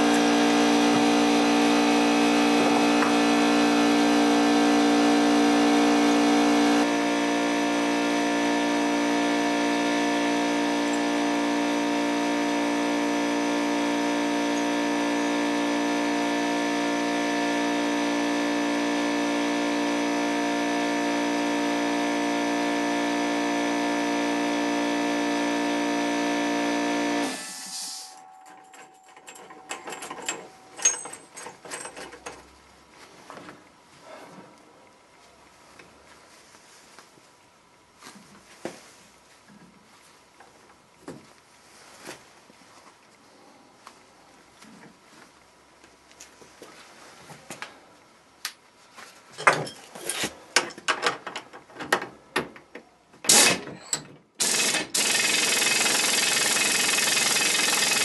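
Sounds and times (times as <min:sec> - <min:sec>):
machine motor humming: 0:00.0 - 0:31.6, 0:54.4 - 0:58.0
metal parts clinking: 0:28.5 - 0:32.4.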